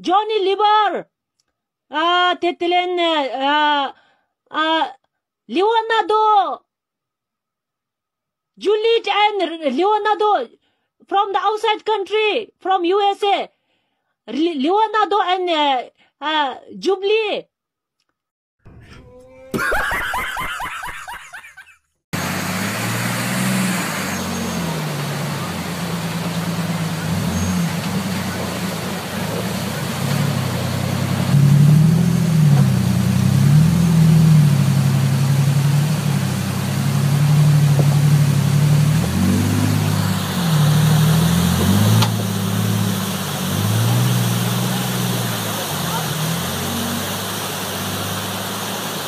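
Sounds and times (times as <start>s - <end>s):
engine revving: 22.2s - 49.0s
water rushing: 22.2s - 49.0s.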